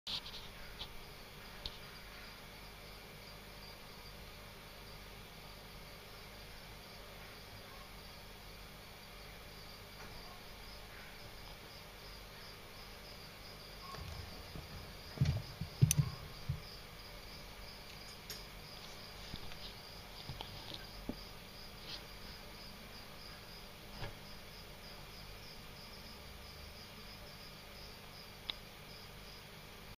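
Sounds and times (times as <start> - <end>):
cricket chirping: 0.1 - 29.6
dull knocks and bumps: 13.9 - 16.8.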